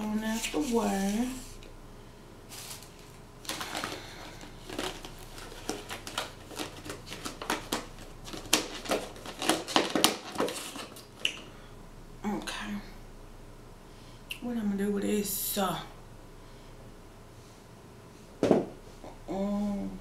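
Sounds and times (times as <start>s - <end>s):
plastic lid crackling and snapping: 3.4s - 11.4s.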